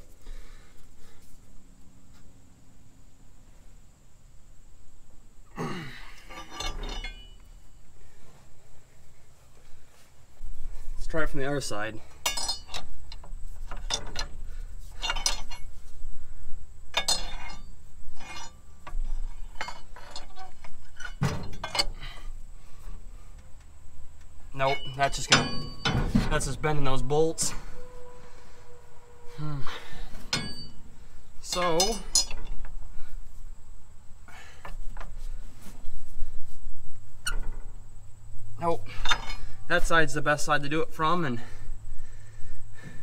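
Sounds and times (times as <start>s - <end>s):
metal bar scraping: 6.2s - 7.5s, 12.2s - 16.0s, 16.9s - 22.2s, 24.6s - 32.6s.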